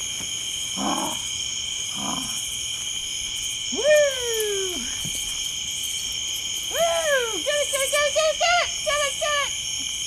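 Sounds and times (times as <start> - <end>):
night insects chorus: 0.0 - 10.0.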